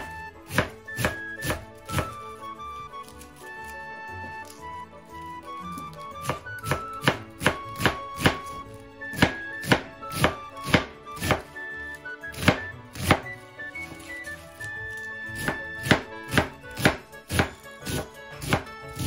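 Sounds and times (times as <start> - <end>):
knife chopping on cutting board: 0.0 - 2.5, 6.2 - 11.6, 12.3 - 13.4, 15.3 - 19.0
light background music: 0.0 - 19.0.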